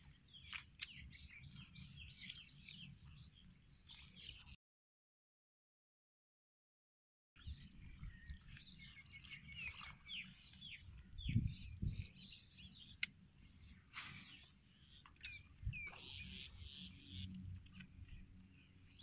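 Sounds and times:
birds chirping: 0.0 - 4.6, 7.4 - 19.0
wind noise rumble: 10.8 - 12.4, 15.3 - 16.4.

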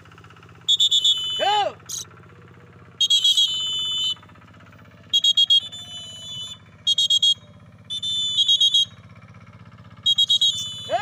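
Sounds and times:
pea whistle blasts: 0.7 - 2.0, 3.0 - 4.2, 5.1 - 9.0, 10.0 - 11.0.

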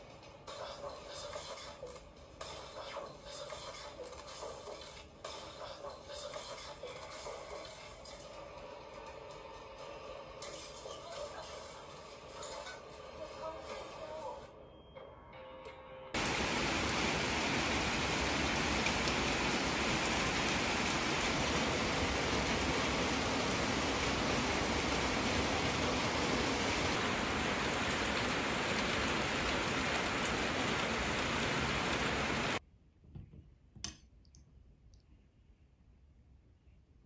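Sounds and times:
rain on patio and leaves: 16.2 - 32.6.

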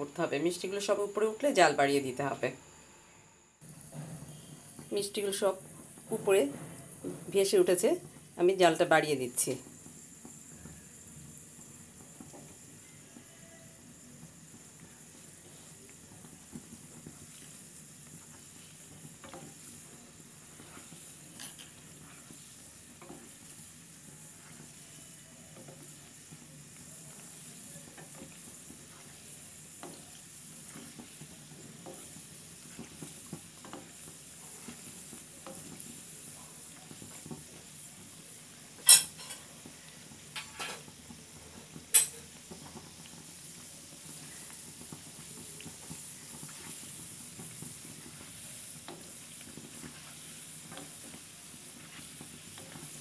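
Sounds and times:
dough sizzling in hot oil: 0.0 - 53.0
spatula scraping: 16.5 - 35.9.

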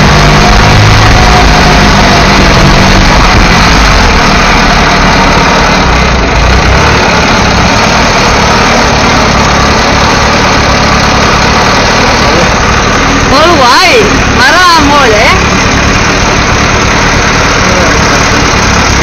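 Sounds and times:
motorcycle engine rumbling: 0.0 - 19.0.

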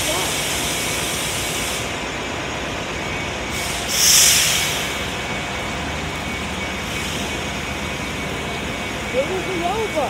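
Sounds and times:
air brakes hissing: 0.0 - 2.2, 3.4 - 7.9
wet-road traffic noise: 0.0 - 10.0.

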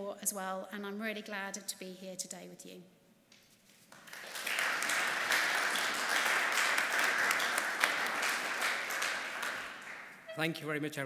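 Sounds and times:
audience applauding: 3.9 - 10.5.

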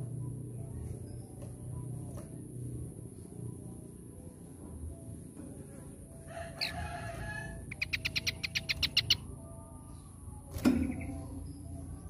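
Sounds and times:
bird calling: 7.7 - 9.2.

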